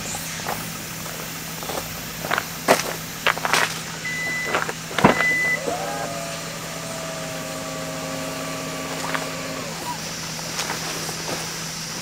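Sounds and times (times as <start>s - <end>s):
small electric motor whirring: 5.5s - 10.1s.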